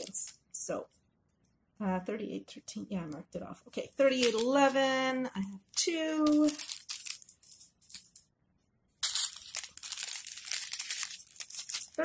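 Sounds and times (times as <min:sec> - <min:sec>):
plastic bags crinkling: 0:03.8 - 0:04.9, 0:05.9 - 0:08.2, 0:09.0 - 0:12.0.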